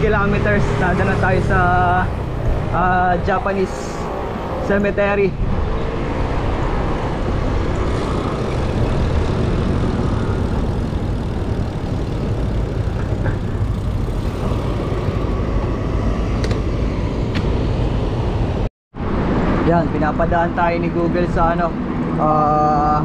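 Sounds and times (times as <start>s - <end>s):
road noise: 0.0s - 23.0s
wind rumble on microphone: 0.0s - 23.0s.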